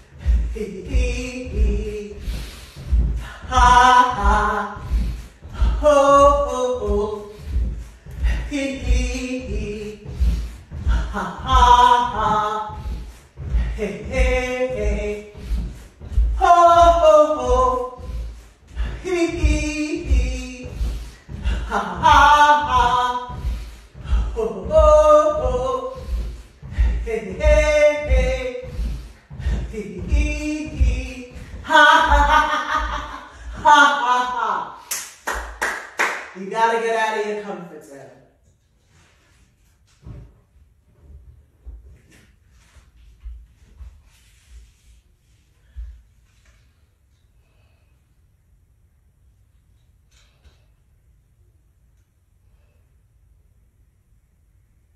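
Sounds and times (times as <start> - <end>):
low thudding beat: 0.0 - 18.4
regular low thump: 0.0 - 33.7
wordless vocal chanting: 0.0 - 34.8
person laughing: 31.8 - 34.3.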